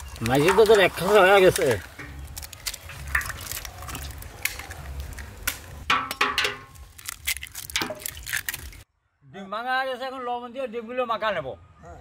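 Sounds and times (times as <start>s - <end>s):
eggshells cracking: 0.0s - 8.8s.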